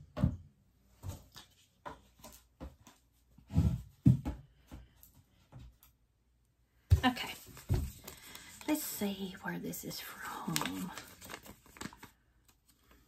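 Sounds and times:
items knocking on a desk: 3.6 - 4.5.

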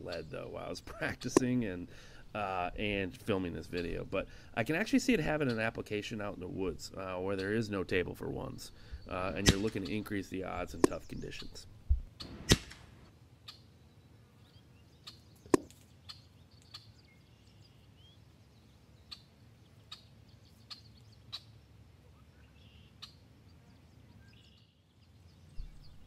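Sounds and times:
sharp crack: 1.2 - 1.7, 9.3 - 10.0, 10.7 - 11.2, 12.2 - 13.1, 15.5 - 15.9
faint bird chirps: 13.4 - 26.0.

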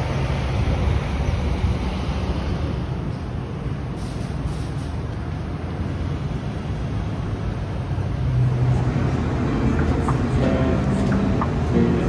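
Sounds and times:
background music: 10.4 - 12.0.

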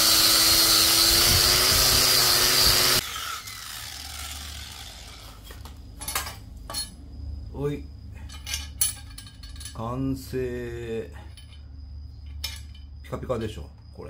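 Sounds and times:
buffing wheel whine: 0.0 - 5.8
metal pipe knocks and clinks: 6.0 - 7.0, 8.3 - 9.8, 11.3 - 11.6, 12.2 - 12.9.

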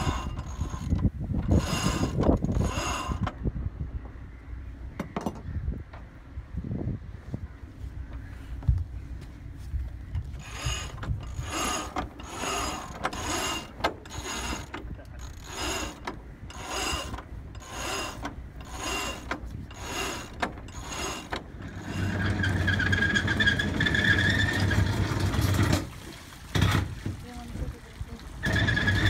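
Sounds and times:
low hum with whine: 0.0 - 25.9
winch ratchet clicking: 10.4 - 23.3.

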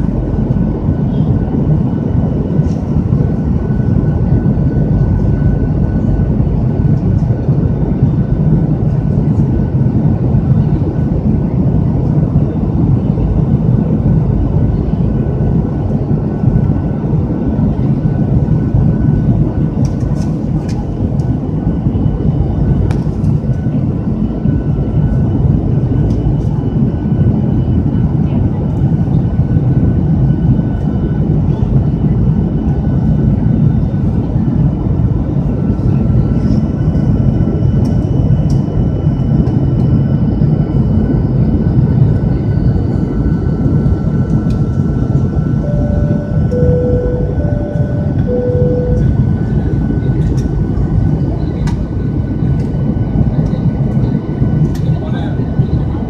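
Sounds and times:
jet engine and airflow rumble: 0.0 - 56.0
faint steady whine: 44.0 - 50.8.

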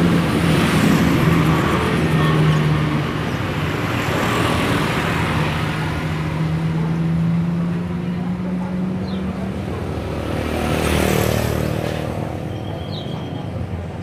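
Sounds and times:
road traffic noise: 0.0 - 14.0.

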